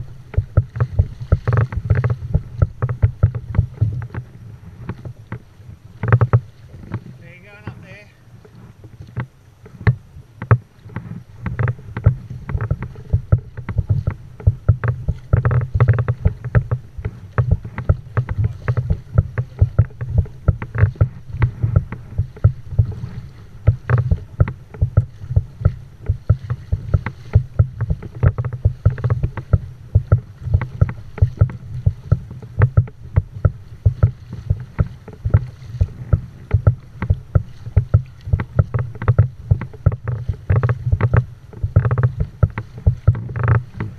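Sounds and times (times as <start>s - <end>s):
steady low rumble: 0.0s - 6.6s, 7.2s - 43.9s
water splashing against kayak hull: 0.0s - 43.9s.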